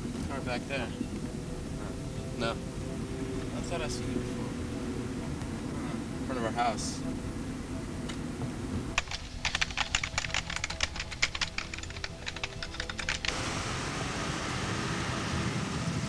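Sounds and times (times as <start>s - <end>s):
rapid keyboard typing: 9.0s - 13.4s.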